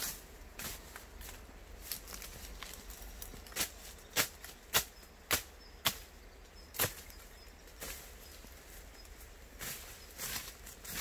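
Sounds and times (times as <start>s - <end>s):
blade chopping through brush: 3.5s - 6.1s, 6.8s - 7.1s.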